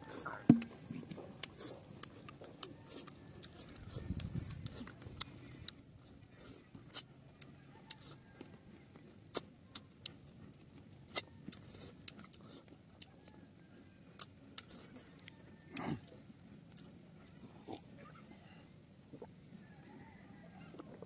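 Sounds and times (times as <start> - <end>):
lip smacks and mouth clicks: 0.3 - 8.5, 9.3 - 13.1, 14.2 - 17.4.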